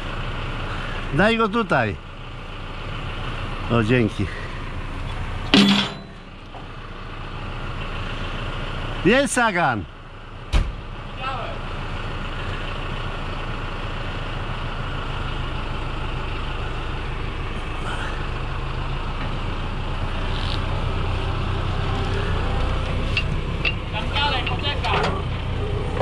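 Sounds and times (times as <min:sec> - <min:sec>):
tractor engine running: 0:00.0 - 0:26.0.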